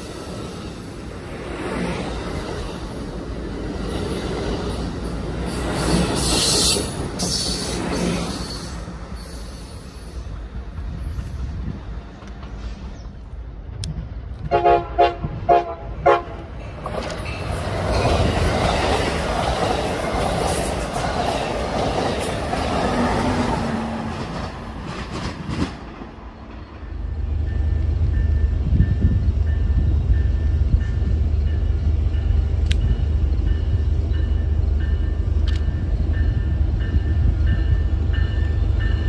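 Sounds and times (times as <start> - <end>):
train wheels rushing on rail: 0.0 - 39.0
train horn toots: 14.4 - 16.6.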